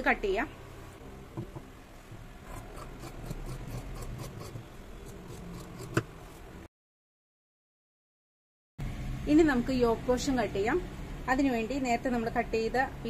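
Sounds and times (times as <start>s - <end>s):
scissors snipping fabric: 2.5s - 4.6s.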